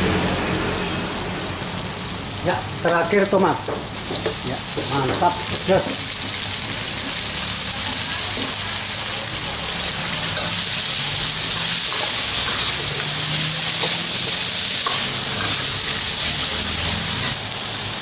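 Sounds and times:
vegetables sizzling in oil: 0:00.0 - 0:18.0
metal ladle stirring in wok: 0:10.0 - 0:17.4.

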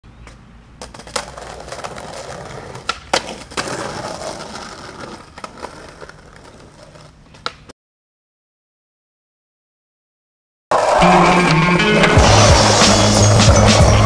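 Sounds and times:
skateboard wheels rolling on pavement: 0:00.1 - 0:07.7, 0:10.7 - 0:14.0
skateboard clacking on ground: 0:00.2 - 0:07.7.

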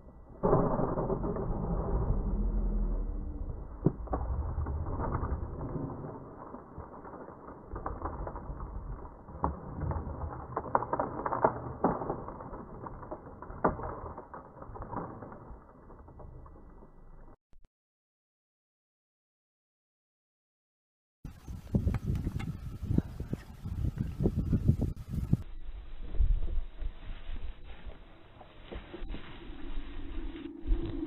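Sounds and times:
wind buffeting microphone: 0:21.3 - 0:27.9.

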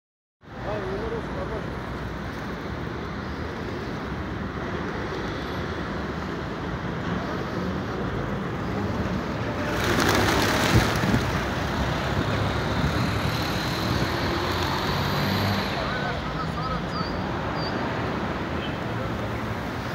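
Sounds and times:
city traffic hum: 0:00.4 - 0:19.9
pigeon wings beating: 0:09.6 - 0:11.7.

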